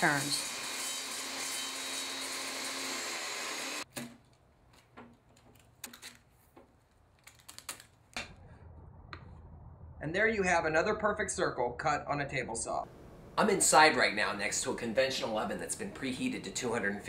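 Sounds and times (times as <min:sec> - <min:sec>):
table saw cutting plastic: 0:00.0 - 0:03.8.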